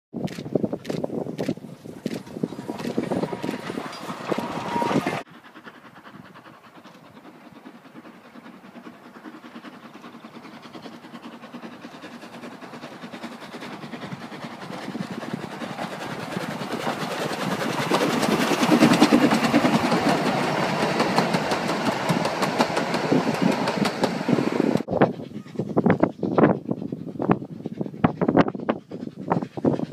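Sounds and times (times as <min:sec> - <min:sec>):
wind on microphone: 0:00.1 - 0:05.2, 0:13.6 - 0:29.9
steam train approaching: 0:01.1 - 0:29.9
carriages clattering over rail joints: 0:02.0 - 0:05.2.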